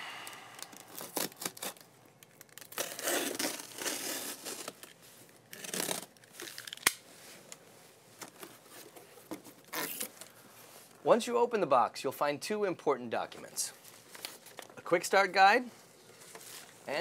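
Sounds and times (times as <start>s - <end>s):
packing tape being slit and torn: 0.5s - 7.0s, 9.6s - 10.3s.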